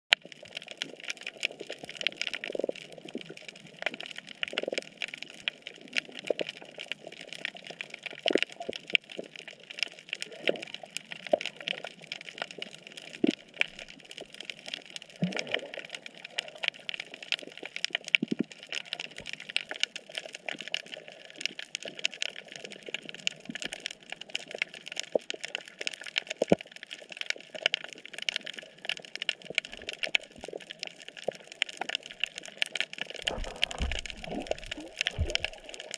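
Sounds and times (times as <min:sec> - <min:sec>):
snapping shrimp crackle: 0:00.2 - 0:35.9
low underwater knocks: 0:33.3 - 0:35.8.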